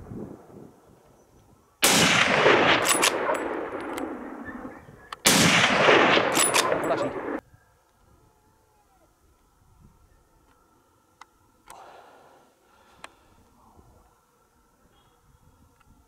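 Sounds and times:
rifle shots echoing: 1.8s - 7.4s.

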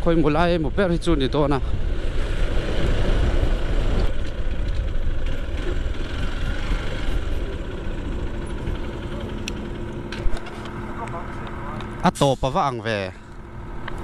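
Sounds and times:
wind rumbling on microphone: 0.0s - 7.7s
motorcycle engine idling: 4.1s - 12.0s.

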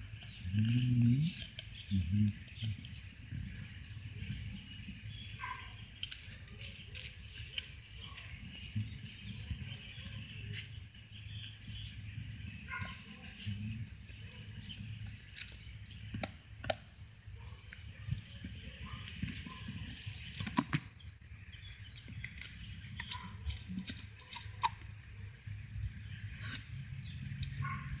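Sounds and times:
dog chewing a grill brush: 21.7s - 24.9s.

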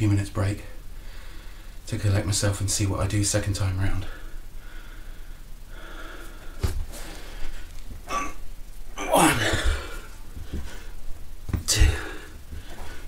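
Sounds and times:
man breathing with effort: 0.9s - 1.8s, 4.2s - 8.4s, 9.1s - 11.0s, 11.7s - 13.0s.

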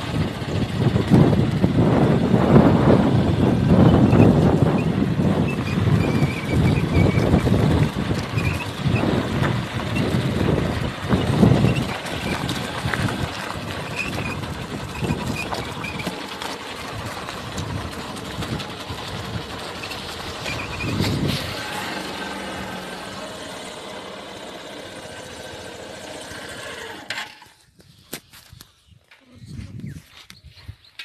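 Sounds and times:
wind on microphone: 0.0s - 16.1s, 20.4s - 21.6s, 27.6s - 31.0s
vehicle engine driving slowly: 0.0s - 30.9s.

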